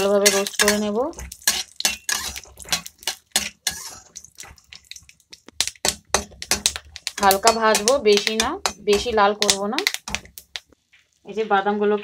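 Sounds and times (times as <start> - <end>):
metal spatula scraping pan: 0.0 - 4.7, 6.1 - 10.3
nuts clicking against pan: 0.0 - 10.8.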